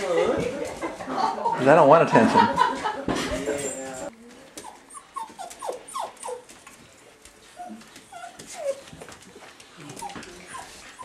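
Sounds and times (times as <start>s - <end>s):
puppies whimpering and yipping: 4.6s - 6.6s, 7.6s - 9.0s.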